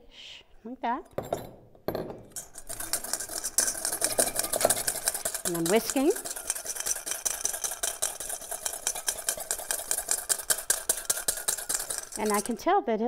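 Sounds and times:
whisk clicking in metal bowl: 2.3 - 12.6.

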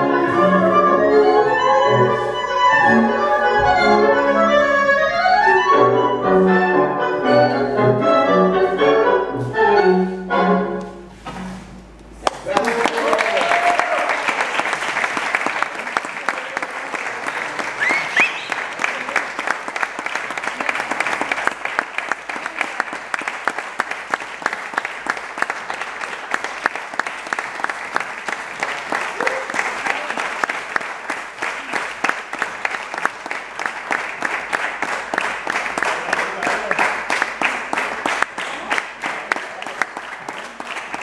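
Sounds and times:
audience applauding: 12.2 - 41.0.

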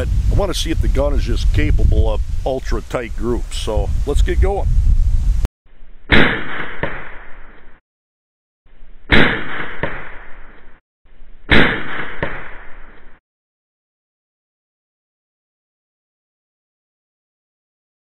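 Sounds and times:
pellet pistol shots cracking: 6.1 - 7.5, 9.1 - 10.5, 11.5 - 12.9.

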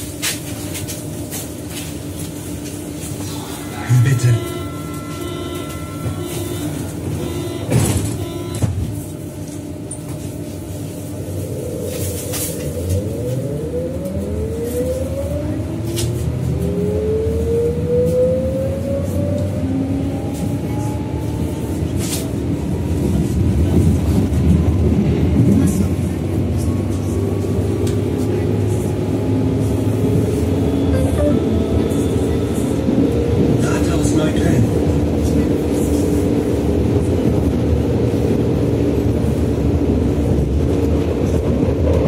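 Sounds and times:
train wheel running noise: 0.0 - 13.5
train traction whine rising: 1.3 - 9.0.

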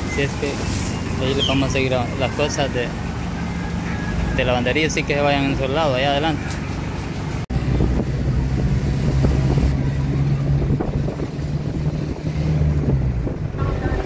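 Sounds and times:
pickup truck engine humming: 0.0 - 14.0
road noise: 0.0 - 14.0
wind buffeting microphone: 7.5 - 14.0.

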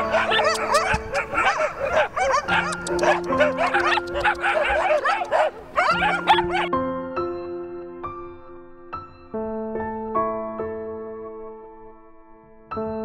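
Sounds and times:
dogs barking and yelping: 0.0 - 6.7
background music with held notes: 0.0 - 13.0.

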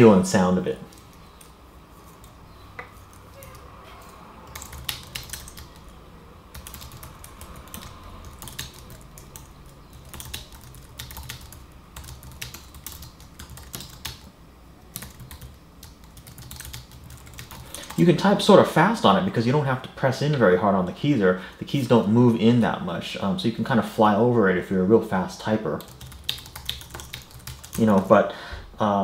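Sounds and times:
typing on a keyboard: 4.5 - 6.0, 6.6 - 14.3, 14.9 - 18.0, 25.8 - 28.1.

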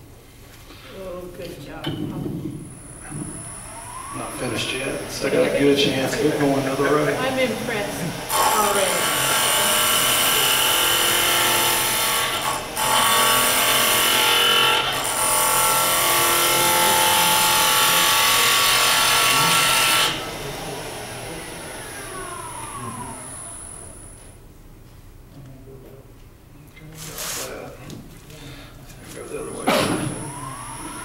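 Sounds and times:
lathe spinning down whine: 2.8 - 24.4, 30.0 - 31.0
lathe tool cutting wood: 2.9 - 24.2, 30.1 - 31.0.

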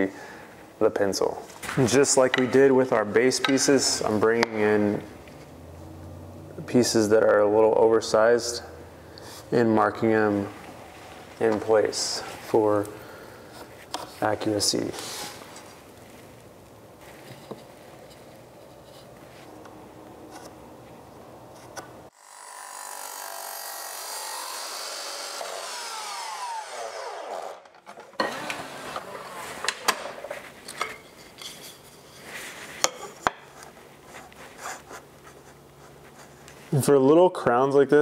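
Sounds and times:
miter saw cutting: 22.1 - 29.8.

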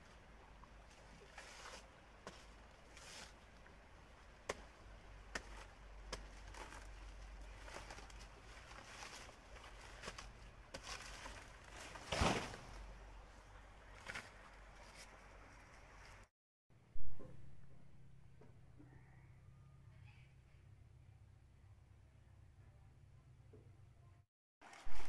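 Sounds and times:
dry leaves rustling: 0.7 - 4.0, 4.8 - 13.0
blade chopping plant stems: 4.4 - 12.8.

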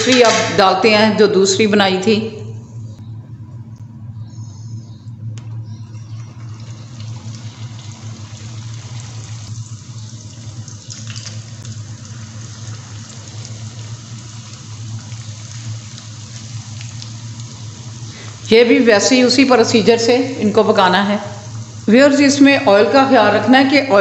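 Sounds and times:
low hum: 0.0 - 24.0
food deep-frying in oil: 5.8 - 24.0.

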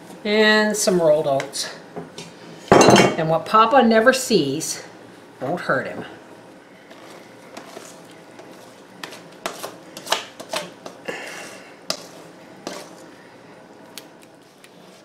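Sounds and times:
utensil scraping metal bowl: 6.9 - 13.1.

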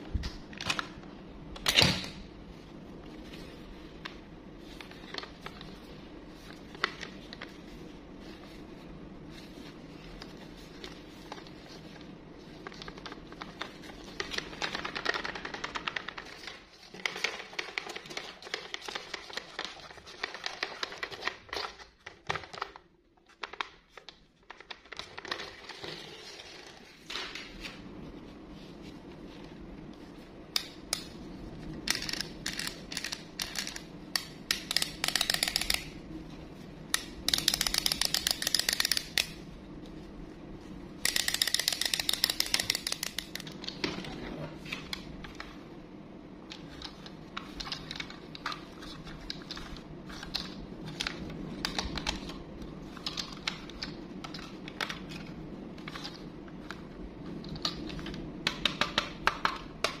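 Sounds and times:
plastic toys clicking and rattling: 31.9 - 33.9, 34.5 - 35.9, 37.0 - 39.4, 41.1 - 43.5.

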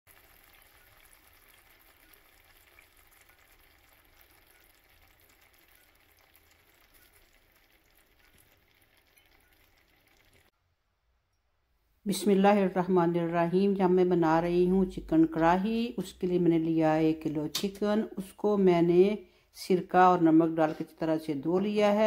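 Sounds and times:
gravy sizzling in a pan: 0.1 - 10.5.

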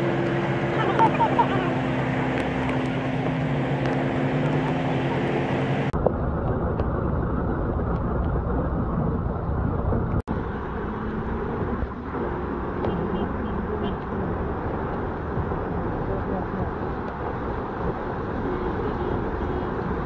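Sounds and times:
vehicle engines idling: 0.0 - 18.3
cars driving through floodwater: 0.0 - 20.0.

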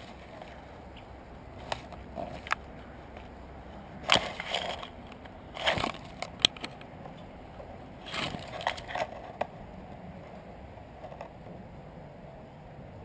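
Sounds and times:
leaves and twigs rustling: 0.0 - 7.3, 8.0 - 9.4.

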